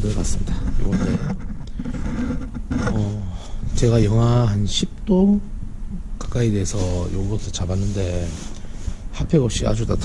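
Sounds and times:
camera handling rumble: 0.0s - 3.1s.

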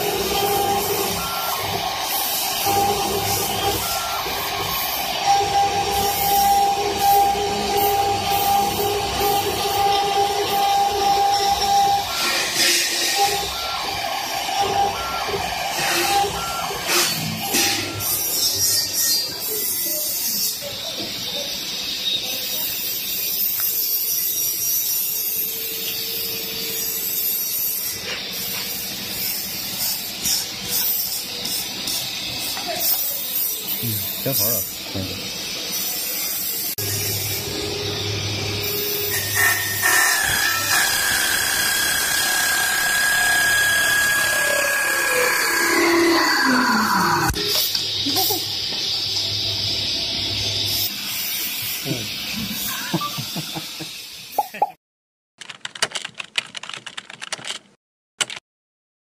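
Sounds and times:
lathe cutters shaving wood: 0.0s - 20.6s, 35.8s - 47.7s.

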